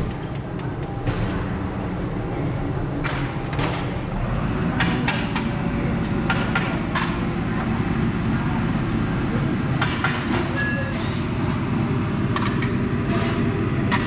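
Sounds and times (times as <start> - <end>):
heavy engine rumbling: 0.0 - 14.0
high squeal: 10.6 - 11.3.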